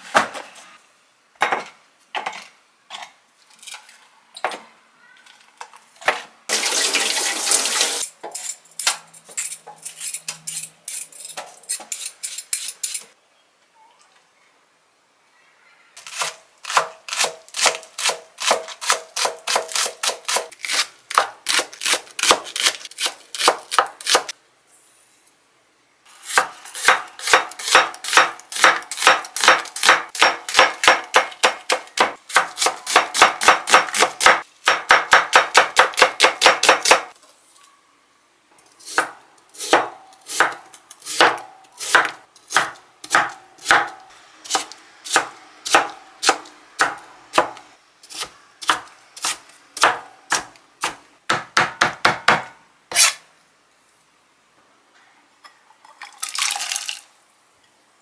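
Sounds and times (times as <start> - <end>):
knife chopping on a board: 39.0 - 40.6, 41.2 - 53.1.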